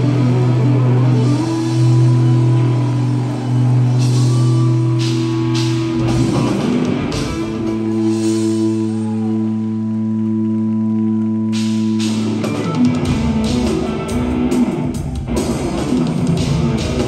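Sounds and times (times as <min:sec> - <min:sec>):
rock band playing: 0:00.0 - 0:17.0
drum fill: 0:03.9 - 0:08.8.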